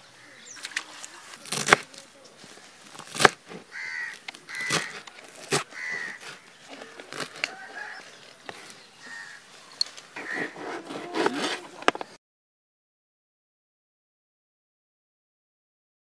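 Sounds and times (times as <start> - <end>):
birds calling: 0.0 - 12.2.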